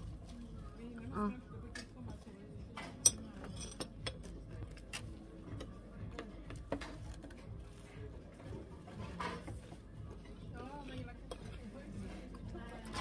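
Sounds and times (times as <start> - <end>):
cutlery clinking against plates: 2.7 - 5.8.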